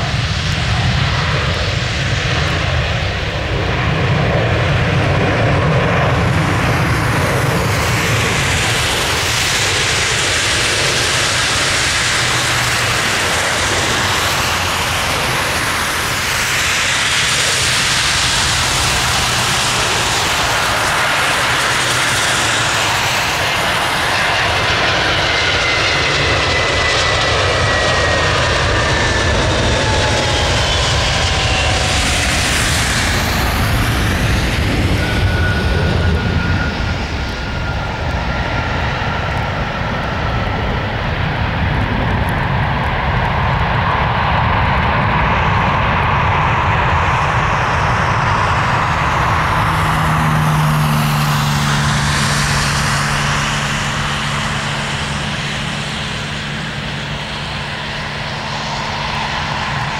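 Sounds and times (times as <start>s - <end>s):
jet engine whine falling: 0.0s - 59.9s
jet rumble: 0.0s - 59.9s.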